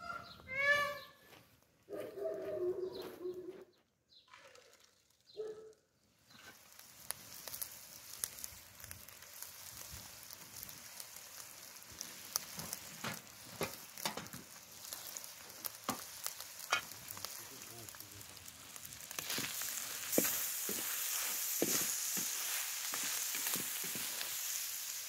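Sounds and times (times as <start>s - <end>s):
sharp crackling pops: 4.4s - 25.0s
meat sizzling in a pan: 6.3s - 25.0s.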